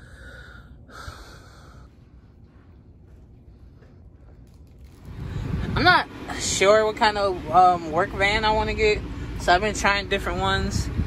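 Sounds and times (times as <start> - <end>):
close breaths: 0.0 - 4.6.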